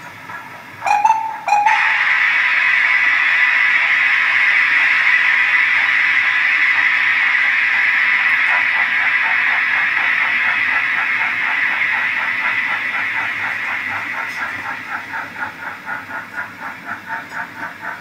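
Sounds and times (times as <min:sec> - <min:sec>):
steam hiss: 0:00.9 - 0:18.0.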